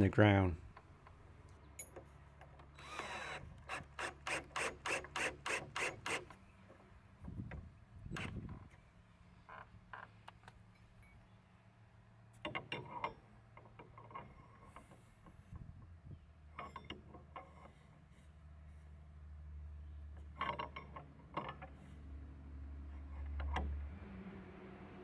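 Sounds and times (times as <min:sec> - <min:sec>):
metal bolt clicking in bracket: 0:20.2 - 0:21.8.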